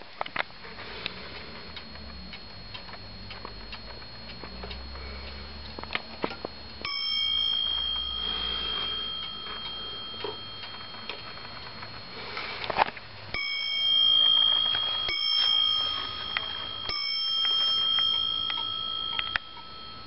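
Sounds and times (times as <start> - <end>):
wall clock ticking: 1.1 - 20.0
clock striking dome bell: 6.8 - 20.0.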